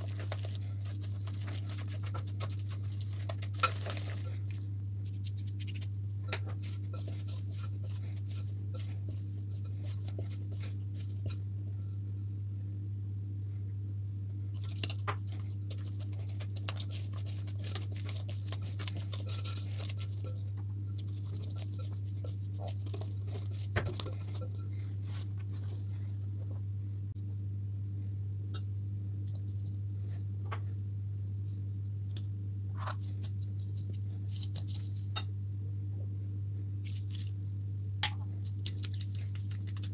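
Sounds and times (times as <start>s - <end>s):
steady low hum: 0.0s - 39.9s.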